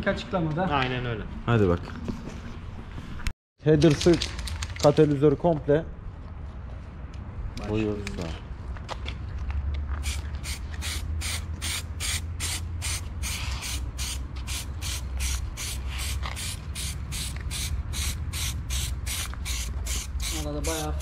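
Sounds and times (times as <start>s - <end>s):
aerosol spray can hissing: 10.0s - 21.0s.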